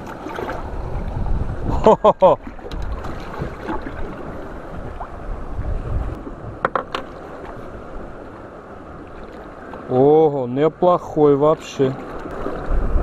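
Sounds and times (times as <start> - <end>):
wind on microphone: 0.0 - 9.3, 12.0 - 13.0
water lapping around boat: 0.0 - 13.0.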